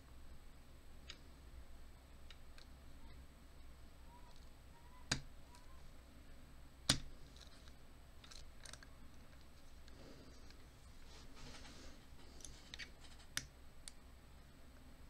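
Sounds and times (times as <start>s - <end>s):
faint scraping and squeaks: 3.0s - 5.9s, 7.2s - 13.4s.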